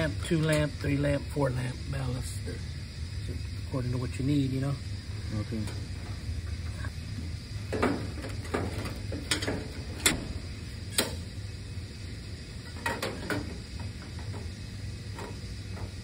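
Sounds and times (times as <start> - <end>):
steady low hum: 0.0 - 16.0
wires and wire nuts clicking: 7.8 - 10.2.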